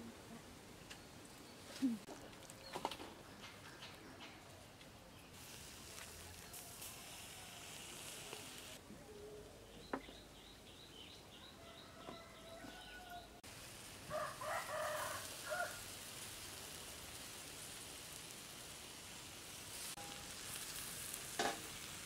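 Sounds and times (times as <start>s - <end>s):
background hiss: 0.0s - 11.4s, 12.3s - 22.0s
rooster crowing: 11.3s - 13.4s, 14.1s - 15.9s.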